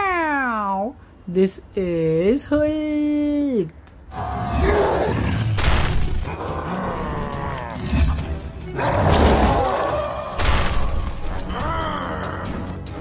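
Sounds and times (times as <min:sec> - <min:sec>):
character growling and roaring: 0:04.1 - 0:05.6, 0:06.2 - 0:10.4, 0:11.2 - 0:12.8
cartoon background music: 0:04.1 - 0:13.0.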